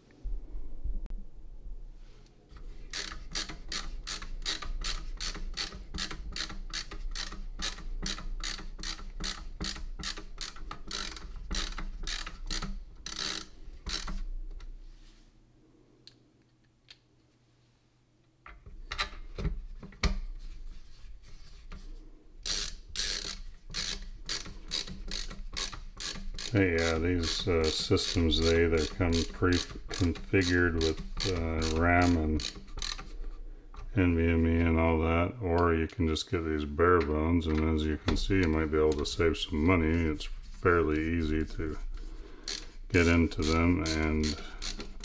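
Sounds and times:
ratcheting screwdriver clicking: 0:02.9 - 0:14.2, 0:22.4 - 0:33.2, 0:42.5 - 0:45.0.

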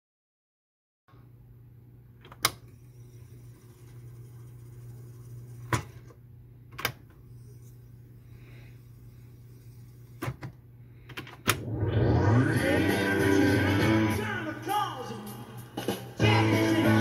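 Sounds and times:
tape recorder humming: 0:01.2 - 0:17.0.

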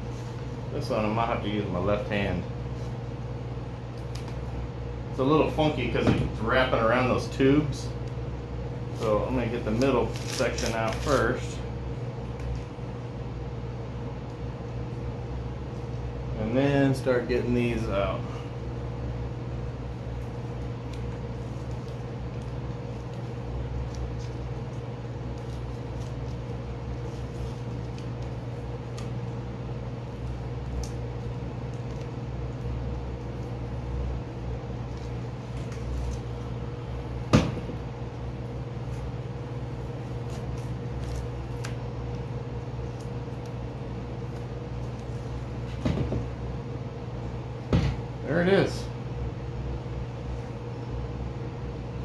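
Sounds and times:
steady low hum: 0:00.0 - 0:52.0
tape peeling crackles: 0:03.9 - 0:04.5, 0:08.9 - 0:11.4, 0:20.0 - 0:29.4, 0:30.0 - 0:34.0, 0:34.6 - 0:36.6, 0:38.4 - 0:45.6.

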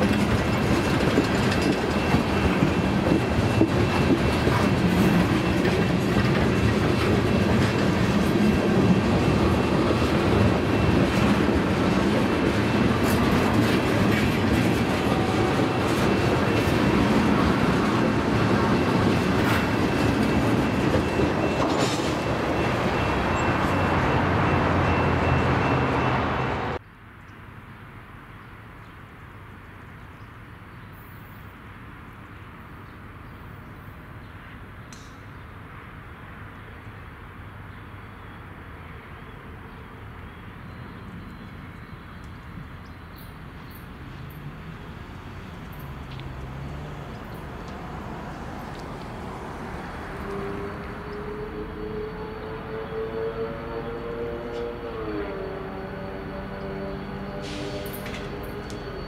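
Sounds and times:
wheels clicking over rail joints: 0:00.0 - 0:23.7
freight train rumbling past: 0:00.0 - 0:26.8, 0:33.4 - 0:59.0
quiet outdoor background: 0:15.8 - 0:59.0
faint high squeal: 0:49.7 - 0:59.0.

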